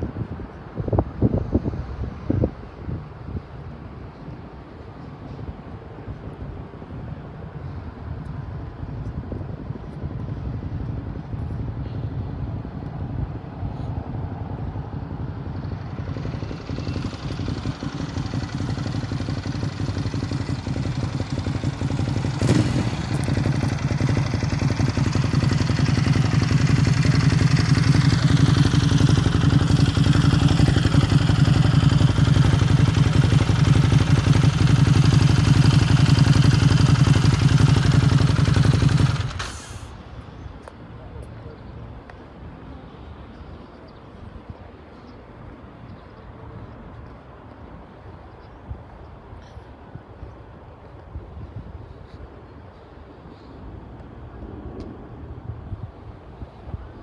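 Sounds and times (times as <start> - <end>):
road traffic: 0.0 - 57.0
motorcycle engine idling: 15.0 - 40.0.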